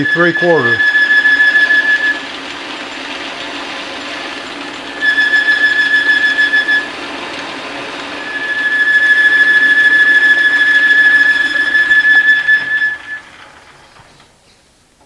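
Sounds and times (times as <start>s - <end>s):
lathe cutting squeal: 0.0s - 14.1s
machine hum: 0.0s - 15.0s.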